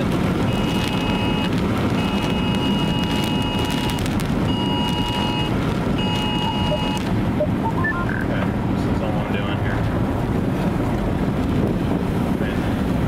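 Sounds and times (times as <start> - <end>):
vehicle road and wind rumble: 0.0 - 13.0
two-pitch electronic beeping: 0.5 - 8.3.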